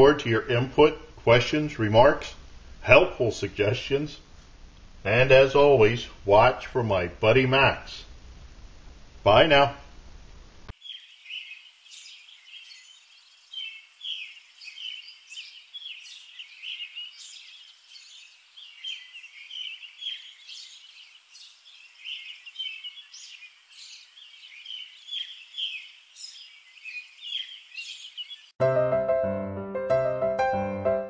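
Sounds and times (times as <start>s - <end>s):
small birds chirping: 10.7s - 28.6s.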